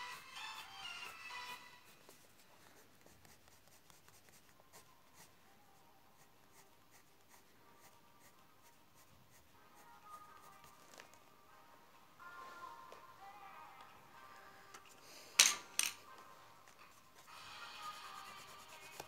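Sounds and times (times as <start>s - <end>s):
pen scratching on paper: 0.0s - 5.4s, 6.1s - 11.0s, 16.9s - 19.0s.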